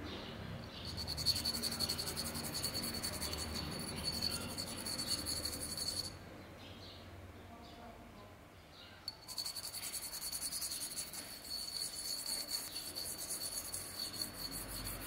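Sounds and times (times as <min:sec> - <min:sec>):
insect trilling: 0:00.8 - 0:06.1, 0:09.2 - 0:15.0.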